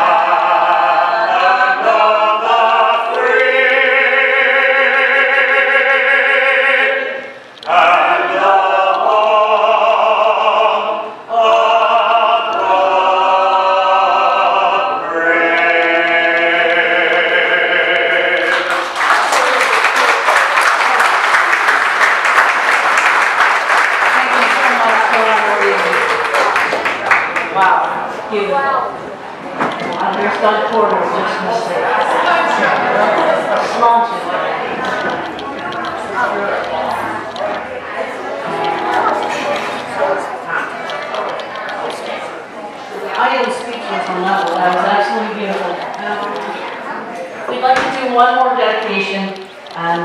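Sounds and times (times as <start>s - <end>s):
group singing in close harmony: 0.0s - 18.9s, 29.3s - 46.8s
audience clapping loudly: 18.4s - 27.9s.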